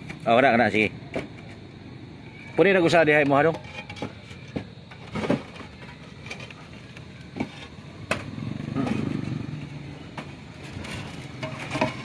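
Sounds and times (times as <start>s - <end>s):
roof tiles knocking and clinking: 3.2s - 9.0s, 10.1s - 12.0s.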